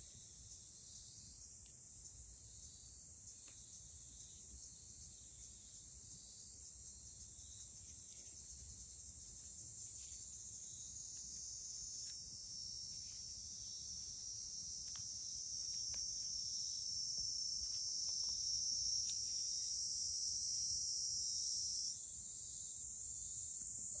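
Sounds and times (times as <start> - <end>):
insects shrilling: 7.4 - 24.0.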